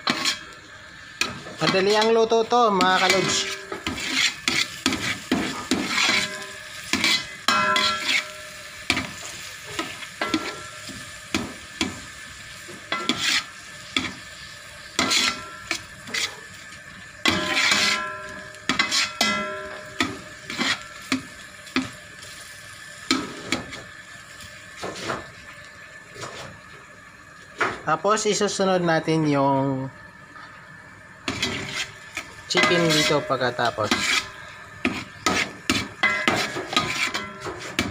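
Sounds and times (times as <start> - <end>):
metal ladle scraping a pot: 0.0 - 0.6, 2.9 - 8.4, 13.0 - 13.5, 15.0 - 16.4, 17.2 - 20.9, 31.3 - 37.9
sizzle of frying in oil: 0.0 - 37.9.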